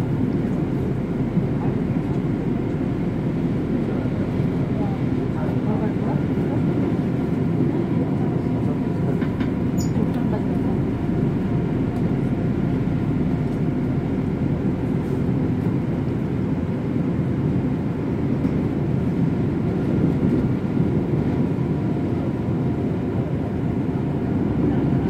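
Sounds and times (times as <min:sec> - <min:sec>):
train wheels rumbling on rails: 0:03.5 - 0:12.6, 0:18.2 - 0:25.0.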